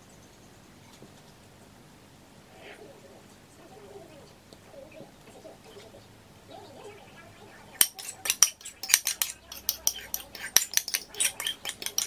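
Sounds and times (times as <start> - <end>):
fork scraping a ceramic bowl: 7.8 - 12.0.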